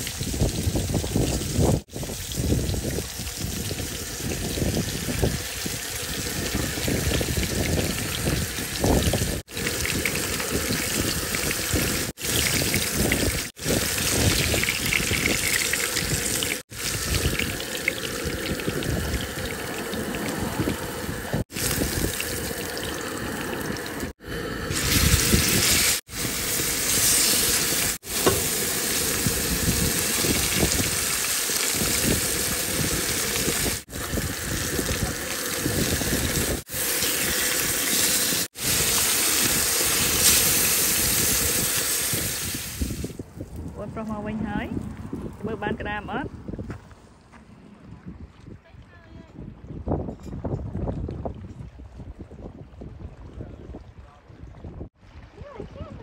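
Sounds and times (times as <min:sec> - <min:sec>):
wind rumble on microphone: 0:00.0 - 0:17.6, 0:18.2 - 0:22.4, 0:23.7 - 0:27.1, 0:29.0 - 0:31.1, 0:31.8 - 0:36.6, 0:38.6 - 0:56.0
fish sizzling in hot oil: 0:00.0 - 0:20.3, 0:21.1 - 0:43.1.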